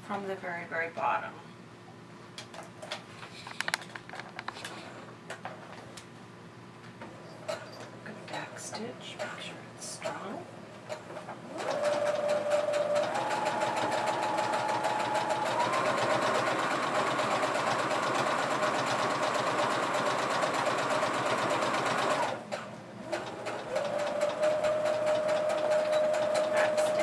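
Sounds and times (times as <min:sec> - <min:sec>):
sewing machine stitching: 0:10.9 - 0:27.0.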